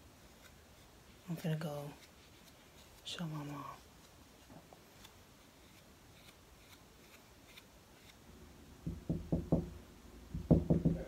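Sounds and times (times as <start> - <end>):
knocks on a hollow door: 8.8 - 11.0.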